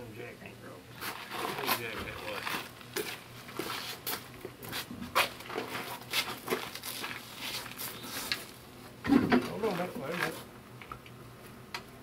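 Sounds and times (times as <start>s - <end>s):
footsteps on gravel: 1.0s - 8.6s.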